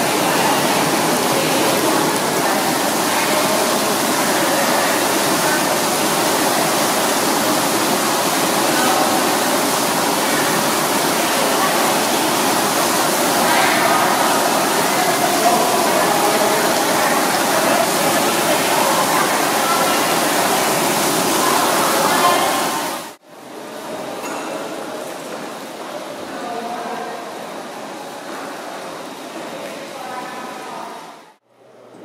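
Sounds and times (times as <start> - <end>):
artificial rain splashing on grating: 0.0 - 23.2.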